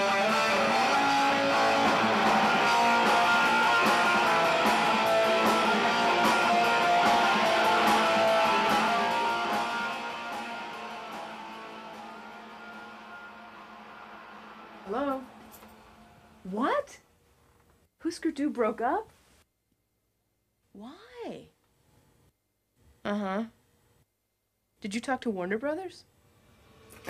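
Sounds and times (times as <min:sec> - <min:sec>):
rock music with electric guitar: 0:00.0 - 0:16.2.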